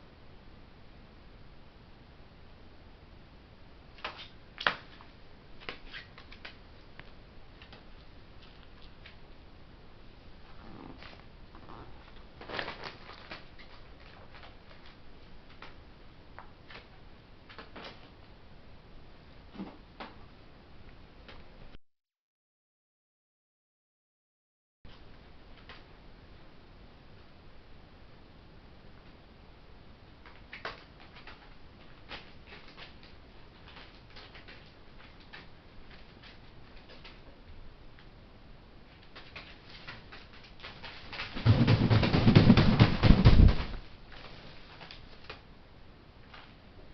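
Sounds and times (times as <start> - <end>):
bird feet on plastic tarpaulin: 12.1 - 15.8.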